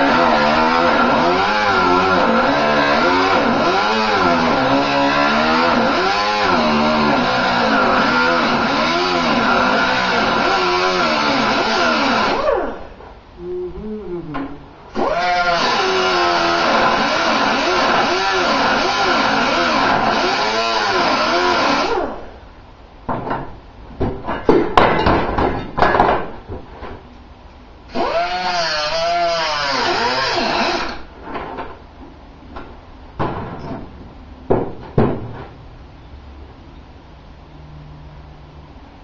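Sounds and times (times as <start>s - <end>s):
power tool on sheet metal: 0.0s - 12.9s, 14.9s - 22.3s, 27.9s - 31.1s.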